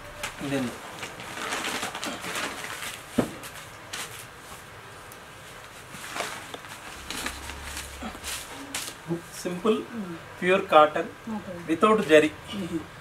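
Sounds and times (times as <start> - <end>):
cloth rustling: 0.2 - 9.1.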